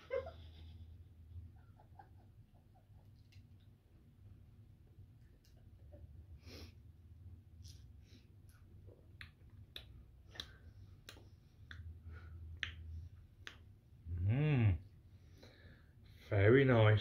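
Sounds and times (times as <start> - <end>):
low steady hum: 0.0 - 17.0
lip smacks: 7.6 - 13.8
soft breaths: 10.2 - 13.2, 15.0 - 16.4.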